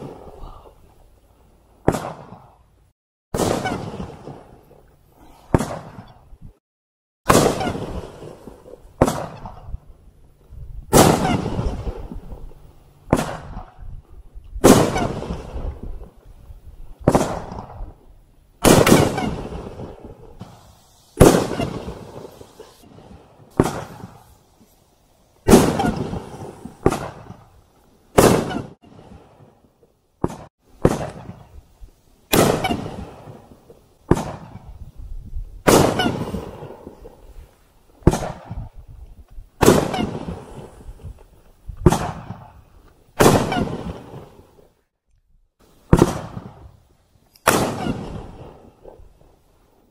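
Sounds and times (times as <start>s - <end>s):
firework bangs with echo: 1.8s - 2.6s, 3.4s - 4.6s, 5.5s - 6.2s, 7.3s - 9.8s, 10.9s - 12.3s, 13.1s - 13.8s, 14.6s - 16.0s, 17.0s - 18.0s, 18.6s - 24.4s, 25.5s - 27.5s, 28.2s - 29.6s, 30.2s - 31.5s, 32.3s - 34.8s, 35.6s - 37.3s, 38.0s - 38.8s, 39.6s - 40.9s, 41.8s - 42.6s, 43.2s - 44.4s, 45.9s - 46.8s, 47.4s - 48.9s.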